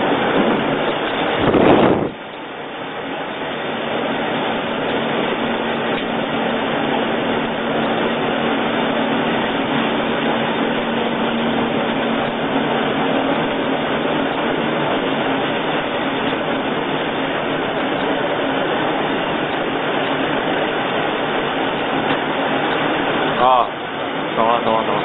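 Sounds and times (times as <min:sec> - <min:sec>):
grinding mill running: 0:00.0 - 0:25.0.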